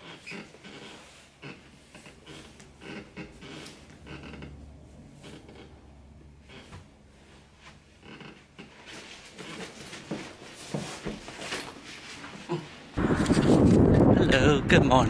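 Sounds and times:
clothing and backpack rustling: 6.5s - 12.9s.

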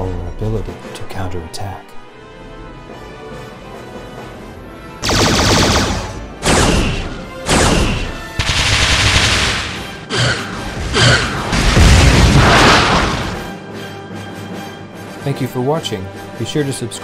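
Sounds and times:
background music: 0.0s - 17.0s
sci-fi blaster shots: 5.0s - 10.0s
explosion with deep rumble: 11.5s - 13.4s.

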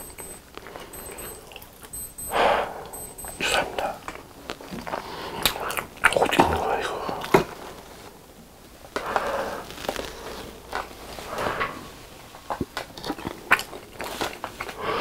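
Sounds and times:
chewing with wet mouth sounds: 12.5s - 14.8s.

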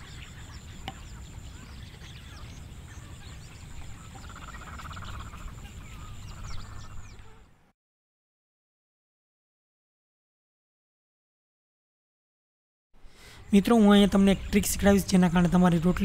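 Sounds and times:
pulsed croaking call: 0.0s - 7.6s
small birds chirping: 0.0s - 7.7s, 13.1s - 16.0s.

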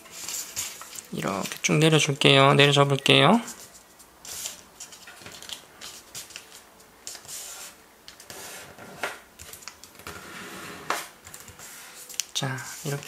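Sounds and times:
paper crackle: 0.0s - 1.8s, 3.4s - 10.3s
paper rustling and crinkling: 0.0s - 2.0s, 3.4s - 13.0s.

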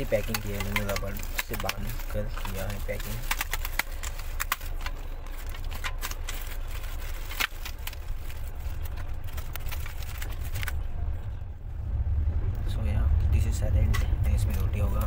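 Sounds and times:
plastic wrap crinkling: 0.0s - 10.8s
moving train rumble: 0.0s - 15.0s.

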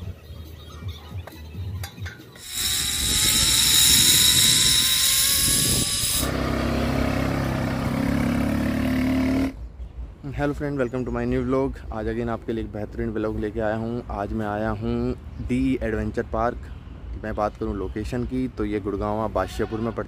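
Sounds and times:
zipline trolley hissing on cable: 2.4s - 6.5s
quad bike engine humming: 5.6s - 9.6s.

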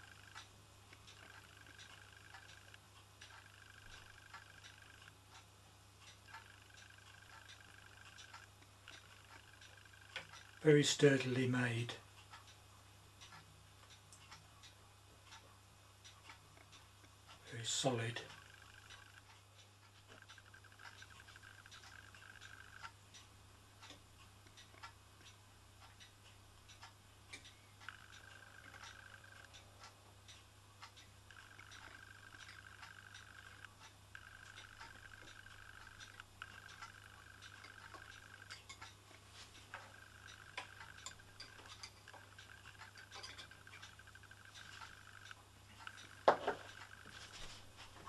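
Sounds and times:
faint metallic clicks and taps: 26.7s - 48.0s
light metal clicks and taps: 40.6s - 43.9s.

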